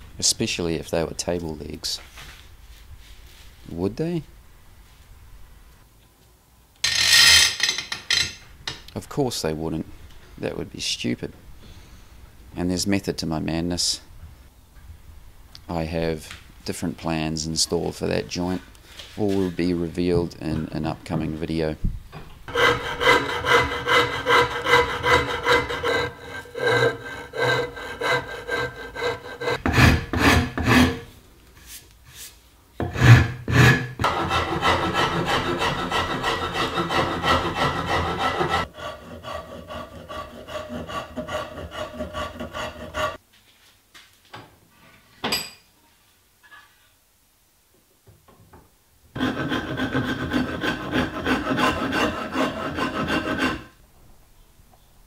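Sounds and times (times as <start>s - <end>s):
rasp rubbing on wood: 22.5s - 31.1s, 32.8s - 43.2s, 49.2s - 53.8s.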